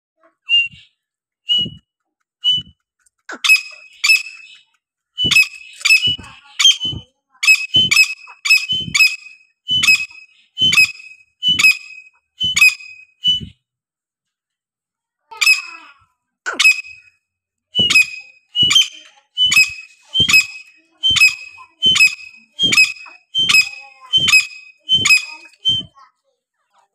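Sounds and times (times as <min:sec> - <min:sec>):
birds whistling calls: 0:00.5 - 0:00.9, 0:01.5 - 0:01.8, 0:02.4 - 0:02.7, 0:03.3 - 0:04.6, 0:05.2 - 0:13.5, 0:16.5 - 0:17.1, 0:17.8 - 0:26.0.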